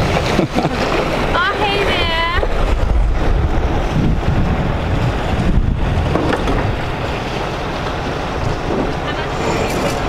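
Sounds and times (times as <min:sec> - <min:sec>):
water rushing along a hull: 0:00.0 - 0:10.0
wind buffeting microphone: 0:00.0 - 0:10.0.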